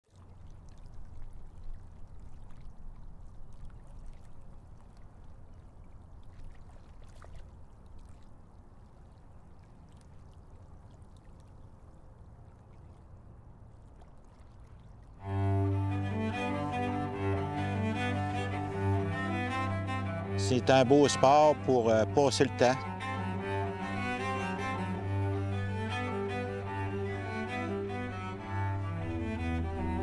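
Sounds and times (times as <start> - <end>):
river water flowing: 0.0 - 30.0.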